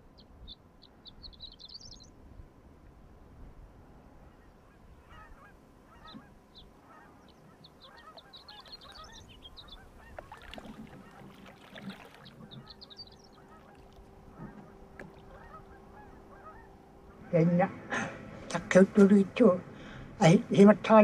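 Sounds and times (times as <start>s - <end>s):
low steady hum: 0.0s - 21.0s
high bird chirps: 0.1s - 2.1s, 6.0s - 10.6s, 11.6s - 13.9s
flock of birds calling: 4.3s - 18.1s.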